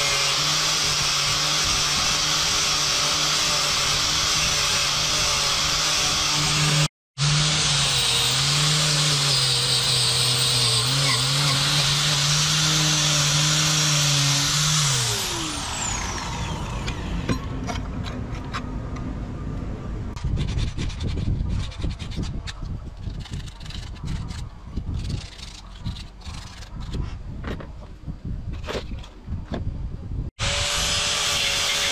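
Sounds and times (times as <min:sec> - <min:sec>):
angle grinder wire brushing steel: 0:00.0 - 0:17.2, 0:30.4 - 0:31.9
grinder winding down: 0:00.0 - 0:17.3.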